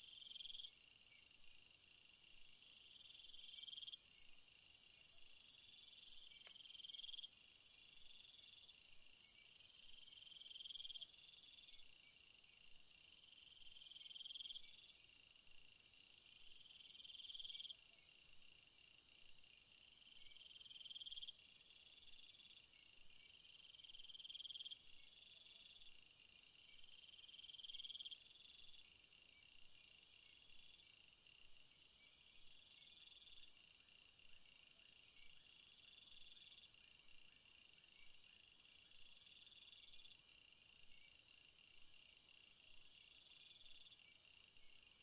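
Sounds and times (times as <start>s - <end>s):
high-pitched insect trill: 0.0s - 15.3s
lower insect chirring call: 0.0s - 45.0s
soft pulsing insect call: 0.0s - 45.0s.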